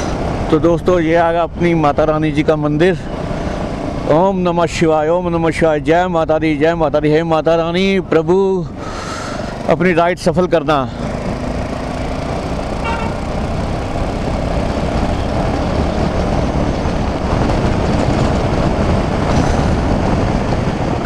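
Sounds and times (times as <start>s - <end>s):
motorcycle engine and road noise: 0.0s - 21.0s
wind rush: 11.0s - 21.0s
faint horn toot: 12.8s - 13.3s.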